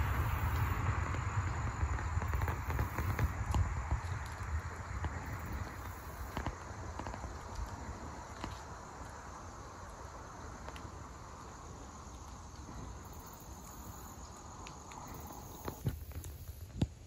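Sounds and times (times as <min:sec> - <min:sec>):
low rumble: 0:00.0 - 0:13.2
insects trilling: 0:00.0 - 0:17.0
faint ticks: 0:02.2 - 0:17.0.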